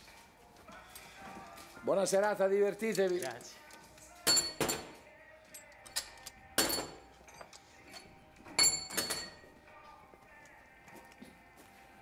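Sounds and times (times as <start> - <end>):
metal tools clinking together: 2.8 - 9.5.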